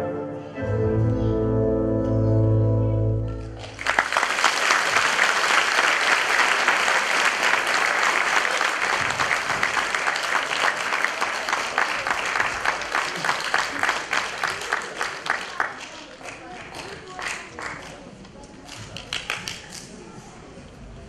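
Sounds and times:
audience applause: 3.5s - 18.1s.

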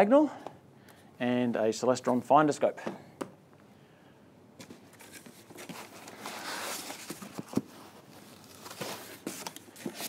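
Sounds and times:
cardboard and packing rustling: 4.6s - 10.0s.

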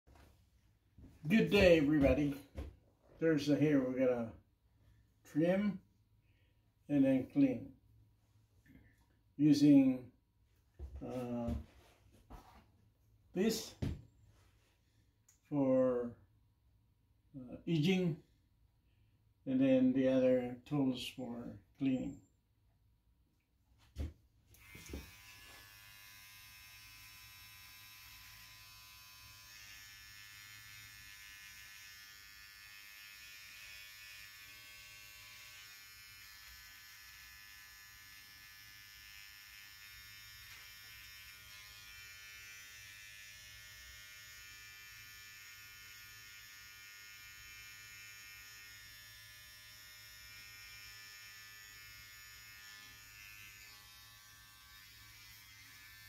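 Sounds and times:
hair trimmer buzzing: 24.5s - 56.0s.

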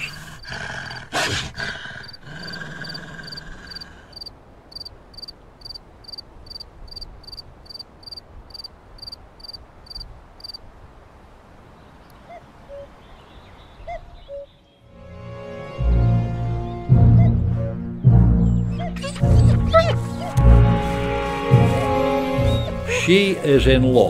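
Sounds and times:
high insect or bird chirps: 2.8s - 10.6s.

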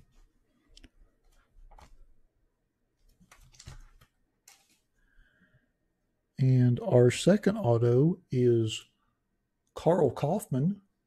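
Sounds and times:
trading cards clicking and scraping: 3.1s - 4.9s.

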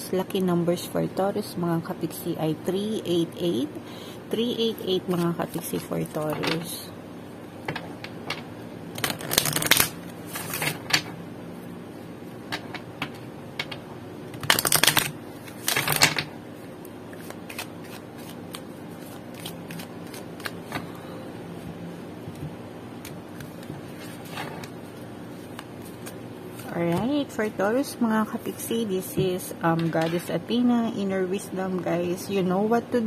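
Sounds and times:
cards riffle shuffled: 9.0s - 11.0s, 14.4s - 16.2s, 17.1s - 20.9s.

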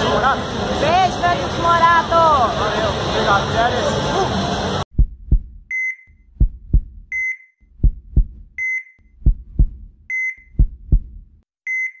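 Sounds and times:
heartbeat thumps: 4.9s - 11.4s.

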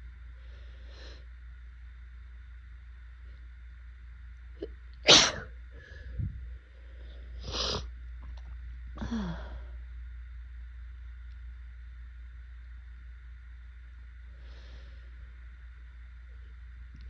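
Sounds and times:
breathy sounds: 9.0s - 9.8s.

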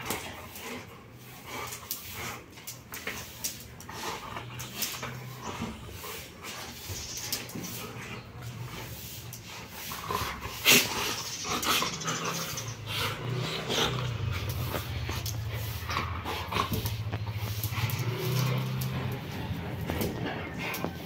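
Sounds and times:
dog growling: 9.6s - 21.0s.

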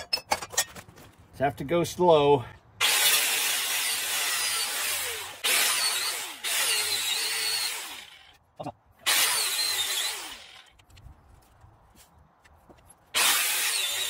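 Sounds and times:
angle grinder cutting metal: 2.8s - 8.4s, 9.0s - 10.7s, 13.2s - 14.0s.

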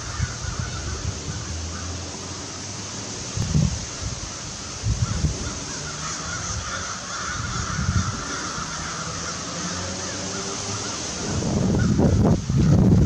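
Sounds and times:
crows cawing: 0.0s - 2.4s, 4.2s - 12.8s.

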